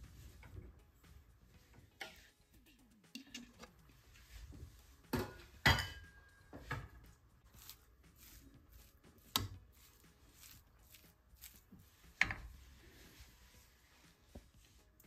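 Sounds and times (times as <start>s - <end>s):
spatula scraping pan: 1.7s - 2.5s.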